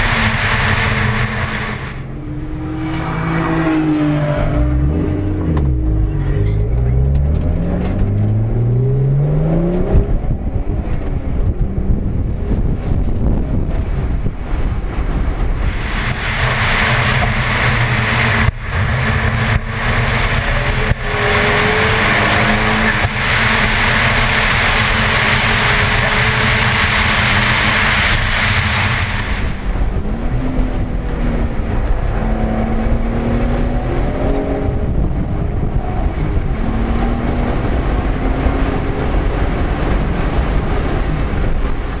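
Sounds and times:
car engine accelerating: 0.0 - 42.0
wind buffeting microphone: 2.0 - 42.0.

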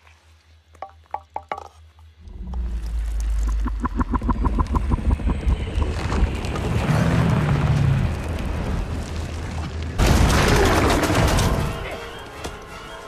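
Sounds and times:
low drone: 2.2 - 9.0
deep rumbling: 2.2 - 11.0.

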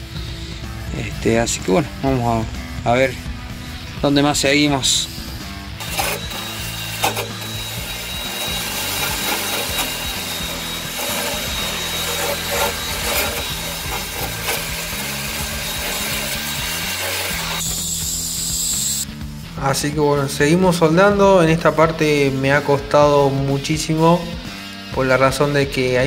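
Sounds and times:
drill wire brush scrubbing metal: 4.8 - 19.0.

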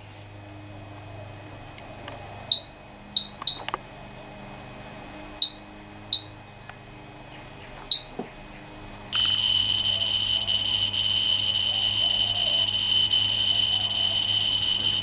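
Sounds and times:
low steady hum: 0.0 - 15.0
geiger counter beeps: 2.5 - 3.6, 5.4 - 6.3, 9.2 - 15.0.

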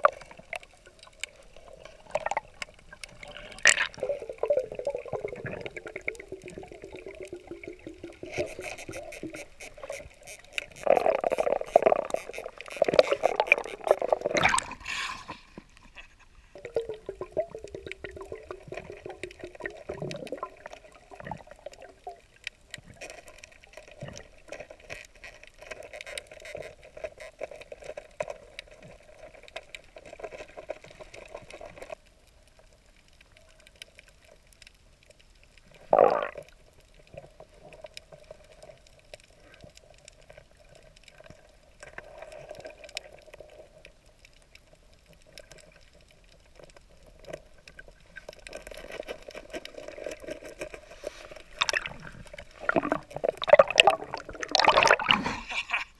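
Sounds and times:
muffled underwater bubbling: 0.0 - 15.4, 16.6 - 23.0, 35.7 - 38.6, 49.7 - 55.9.

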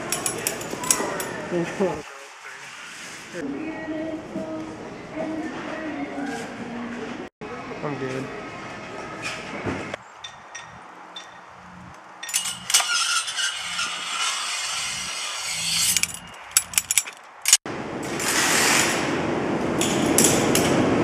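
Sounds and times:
metal scraping shopping carts: 10.6 - 19.1.

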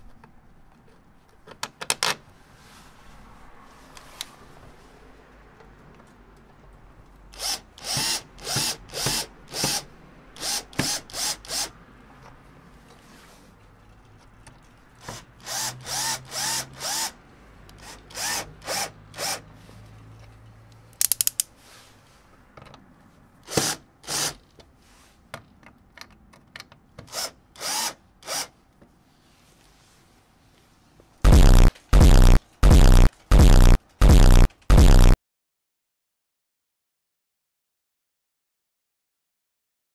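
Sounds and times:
drill-driver whirring: 7.3 - 11.7, 15.4 - 17.2, 17.8 - 19.4, 27.1 - 28.5, 31.3 - 35.2.

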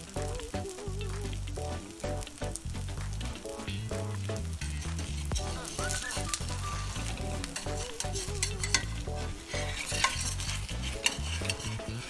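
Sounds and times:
batter sizzling in oil: 0.0 - 12.0
metal spatula scraping pan: 4.6 - 12.0.

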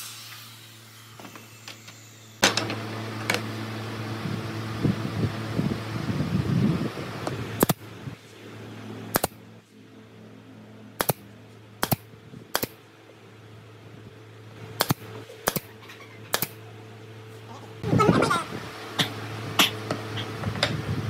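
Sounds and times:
steady low hum: 0.0 - 21.0
nail gun firing: 9.1 - 9.4, 11.0 - 11.2, 11.8 - 12.8, 14.8 - 15.7, 16.3 - 16.6.

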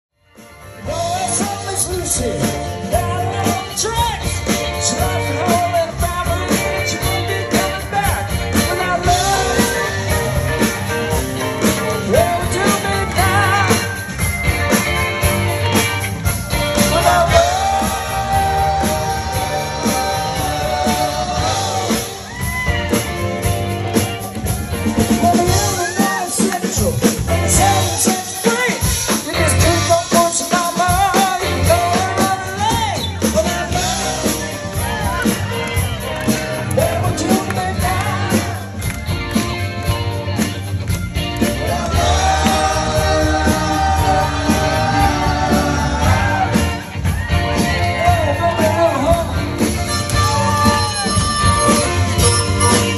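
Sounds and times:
drum kit: 0.2 - 52.9
electric guitars: 0.3 - 52.9
person singing: 0.8 - 14.1, 16.5 - 23.4, 24.3 - 38.8, 41.4 - 52.9
congas: 3.0 - 52.9.

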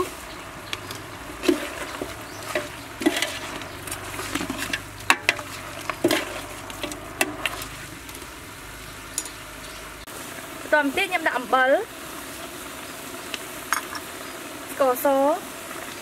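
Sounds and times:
faint steady sizzle: 0.0 - 16.0
metal ladle scraping a steel pot: 0.7 - 7.7.

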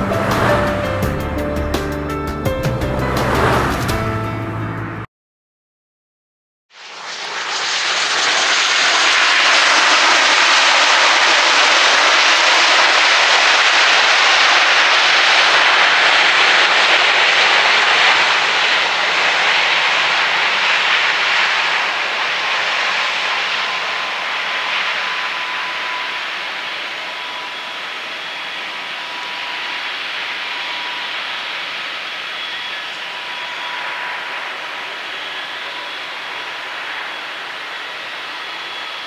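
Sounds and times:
jet engines rushing: 0.0 - 5.1, 6.8 - 39.0
faint thin whine: 17.6 - 39.0.

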